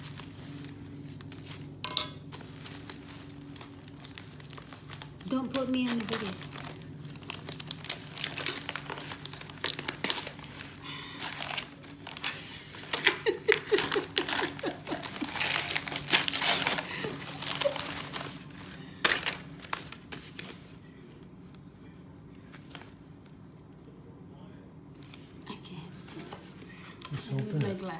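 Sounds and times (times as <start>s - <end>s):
paper ripping: 0.0s - 20.7s
wrapping paper crinkling: 0.0s - 21.2s.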